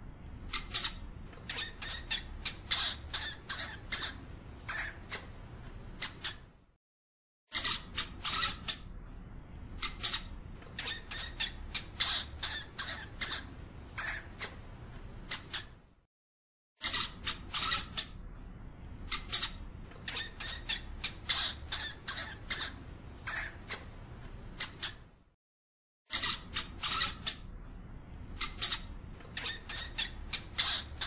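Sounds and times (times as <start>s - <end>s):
hamster squeaking: 0.5s - 5.4s, 6.0s - 6.5s, 7.5s - 8.9s, 9.8s - 14.6s, 15.2s - 15.8s, 16.8s - 18.2s, 19.1s - 24.0s, 24.6s - 25.1s, 26.1s - 27.5s, 28.4s - 31.0s.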